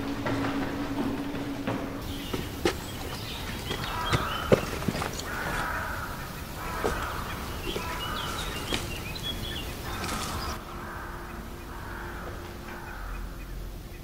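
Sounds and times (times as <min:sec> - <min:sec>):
birds calling harshly: 0:00.0 - 0:14.0
high bird chirps: 0:02.0 - 0:10.6.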